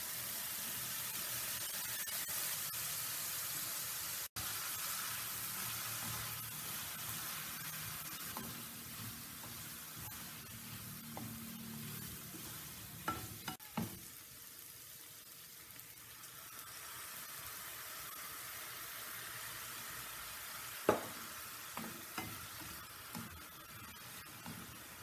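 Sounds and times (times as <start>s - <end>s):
vegetables sizzling in a pan: 0.0s - 25.0s
spatula knocking and scraping pan: 5.7s - 14.1s, 20.9s - 23.4s.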